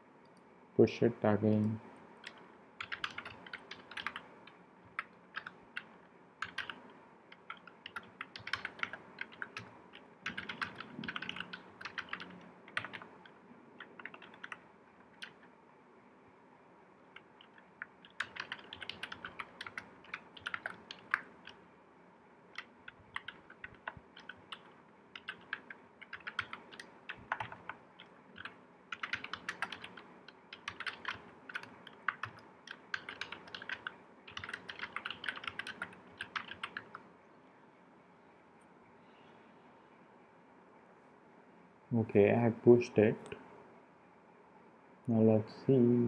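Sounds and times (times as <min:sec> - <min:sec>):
typing on computer keyboard: 0:02.2 - 0:04.3, 0:04.9 - 0:15.5, 0:17.1 - 0:21.6, 0:22.5 - 0:37.0.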